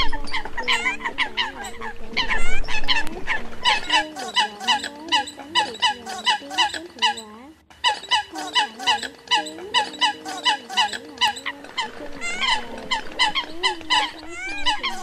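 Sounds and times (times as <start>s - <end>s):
lower wavering bird calls: 3.6s - 15.0s.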